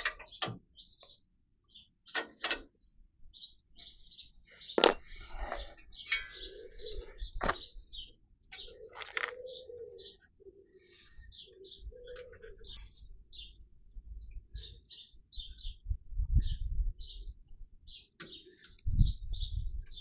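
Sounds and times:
small birds chirping: 0.0 - 20.0
pigeon cooing: 5.5 - 13.5.

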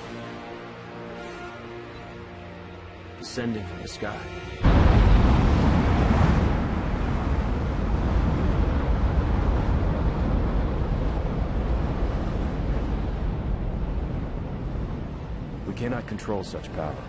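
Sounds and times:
strong wind blowing: 4.6 - 17.0.

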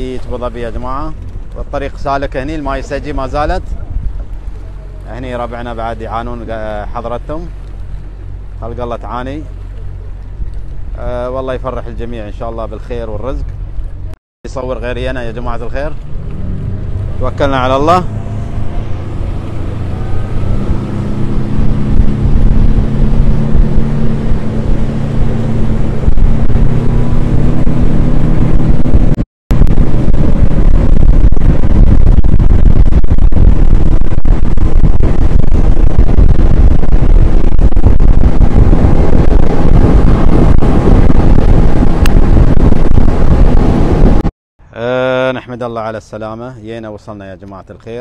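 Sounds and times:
outboard motor humming: 0.0 - 14.2, 14.8 - 44.2
water rushing past hull: 0.0 - 44.3
wind buffeting microphone: 0.0 - 44.3.

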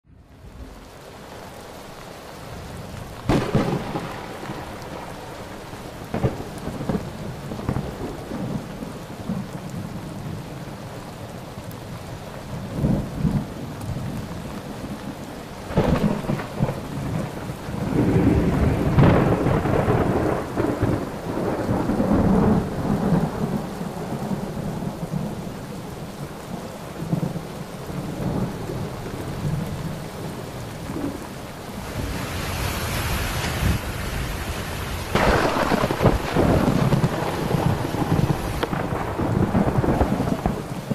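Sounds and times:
rain hissing: 0.1 - 40.9
rolling thunder: 3.2 - 5.4, 6.0 - 10.0, 15.7 - 25.5, 35.1 - 40.9.

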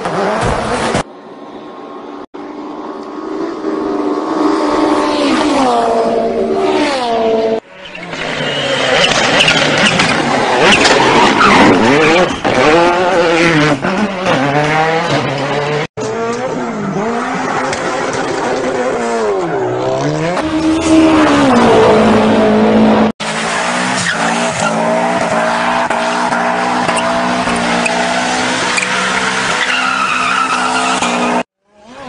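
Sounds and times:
tyre squeal: 7.7 - 12.9, 23.8 - 31.4.

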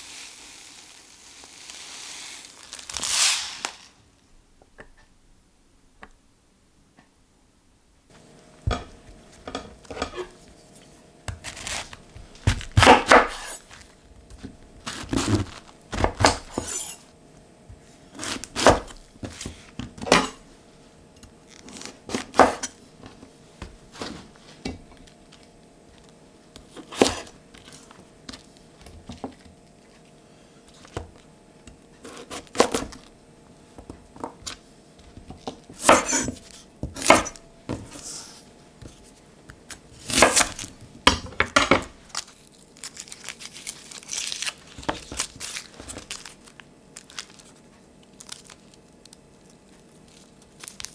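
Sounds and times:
knife cutting cabbage: 11.3 - 13.8, 14.8 - 17.1, 18.2 - 19.6, 26.7 - 27.8, 32.0 - 33.1, 35.8 - 39.0, 39.7 - 40.7.

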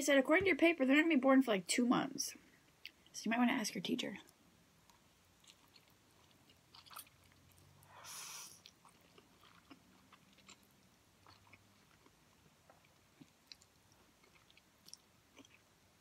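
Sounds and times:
wet chewing: 4.8 - 8.0, 8.6 - 15.8.

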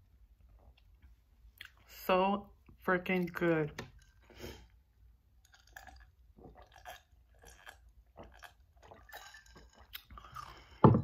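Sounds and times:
person gulping water: 5.4 - 11.0.

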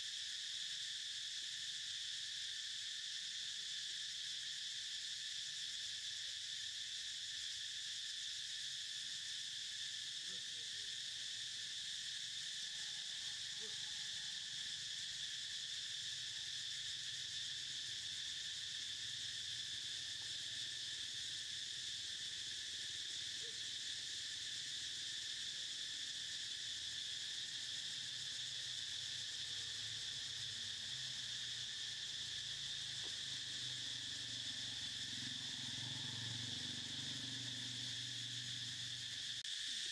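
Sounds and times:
insect chorus drone: 0.0 - 39.9.

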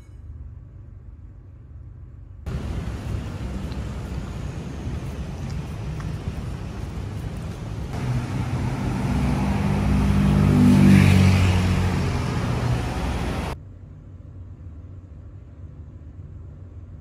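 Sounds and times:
vehicle engine passing by: 2.5 - 13.6.

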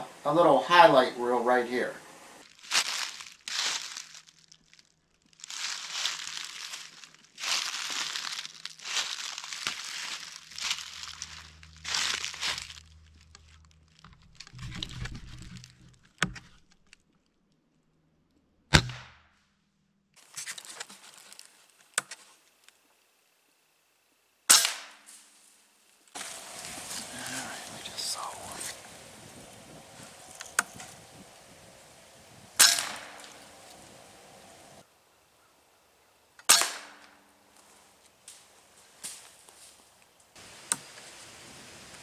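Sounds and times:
footsteps crunching dry leaves: 2.4 - 16.0, 20.2 - 21.8, 26.1 - 34.8, 37.5 - 42.0
sharp cracks: 24.5 - 25.1, 29.8 - 34.8, 36.4 - 37.3.

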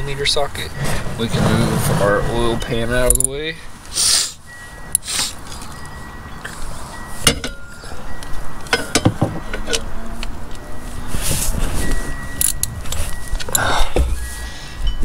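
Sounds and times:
metal hand tools clinking: 12.4 - 13.7.

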